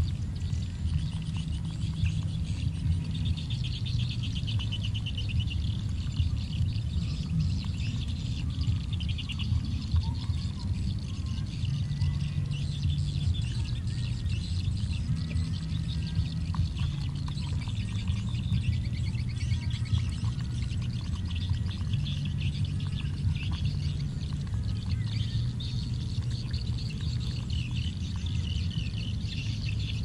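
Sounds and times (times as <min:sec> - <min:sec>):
chirping in rapid high trills: 0:00.0 - 0:30.0
steady low hum: 0:00.0 - 0:30.0.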